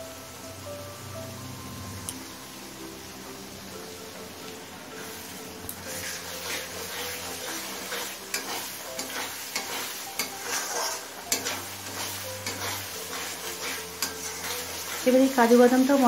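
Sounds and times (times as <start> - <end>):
paste sizzling in oil: 0.1 - 16.0
metal spatula scraping pan: 5.8 - 16.0.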